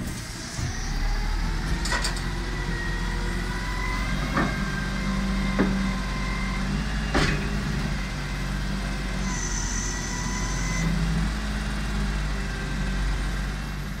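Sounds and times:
diesel engine running: 0.0s - 14.0s
brief high whine: 9.2s - 11.0s.

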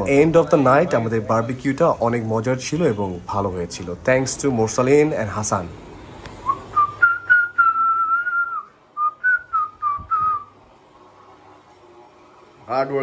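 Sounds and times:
person whistling a tune: 6.4s - 10.5s.

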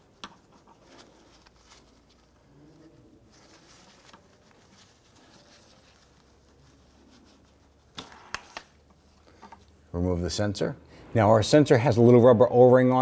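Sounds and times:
faint rustling: 0.0s - 10.2s.

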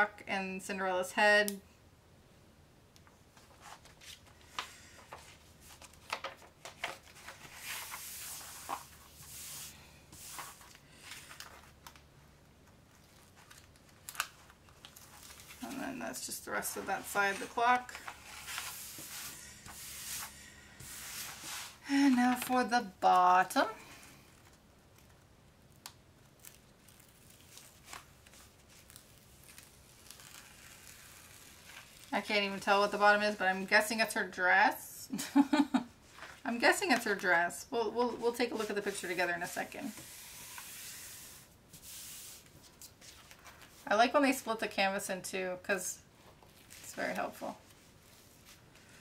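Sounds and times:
canvas and paper crinkling: 3.3s - 23.3s, 24.1s - 33.8s, 38.0s - 44.0s, 46.1s - 49.0s.

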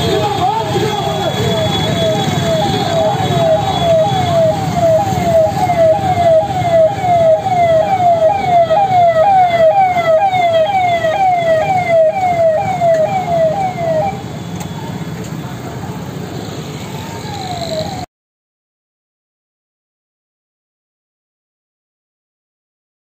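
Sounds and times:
vehicle engines running: 0.0s - 18.0s
electronic siren wailing: 0.9s - 14.3s, 16.6s - 18.1s.

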